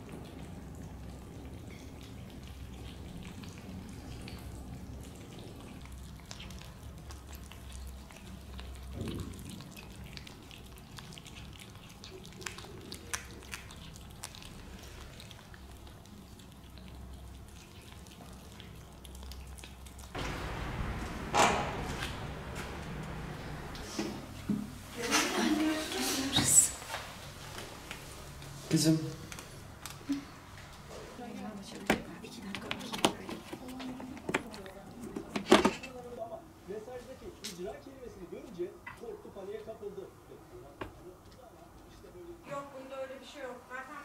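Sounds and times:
low steady hum: 0.0 - 26.0
kittens chewing and lapping food: 0.0 - 43.5.

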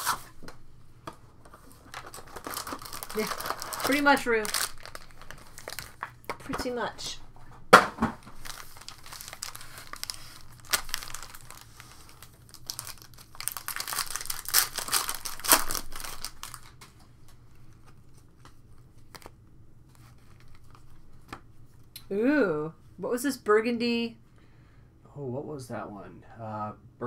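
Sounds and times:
foil wrapper crinkling and tearing: 1.6 - 6.3, 8.2 - 16.8, 18.0 - 19.4.

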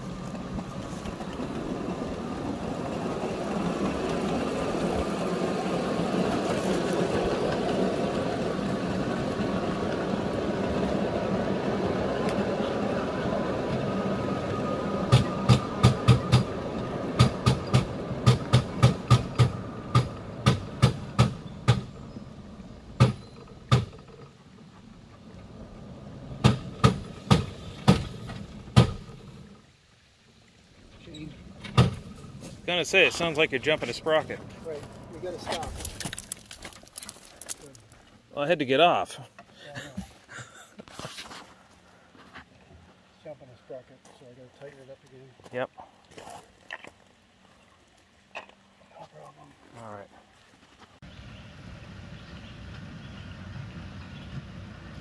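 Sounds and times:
small locomotive engine running: 0.0 - 29.7.

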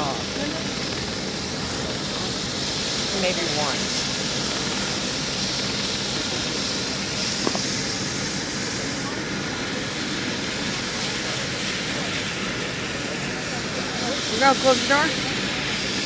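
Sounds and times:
helicopter turbine and rotor: 0.0 - 16.0.

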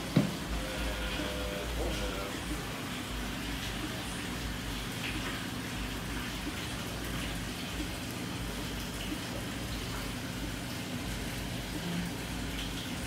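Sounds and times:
equipment low hum: 0.0 - 5.0.

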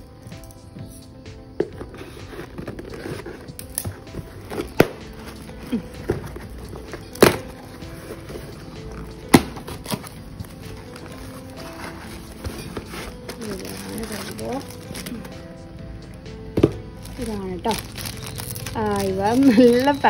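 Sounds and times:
background music: 0.0 - 20.0
tape and card cracking: 1.8 - 8.4, 16.6 - 20.0.

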